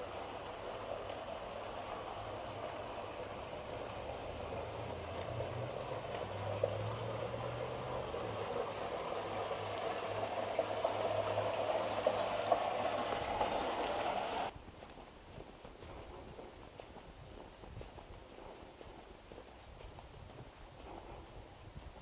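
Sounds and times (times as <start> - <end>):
flowing water rushing: 0.0 - 14.5.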